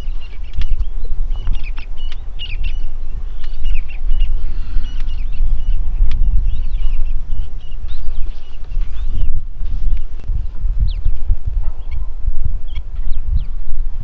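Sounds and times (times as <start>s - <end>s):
birds chirping: 0.0s - 14.0s
low rumble: 0.0s - 14.0s
sharp clicks: 6.0s - 6.3s.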